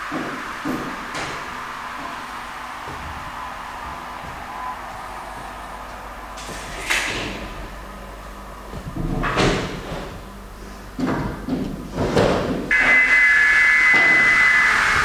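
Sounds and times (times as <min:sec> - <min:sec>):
high-pitched steady tone: 0:12.7 - 0:15.0.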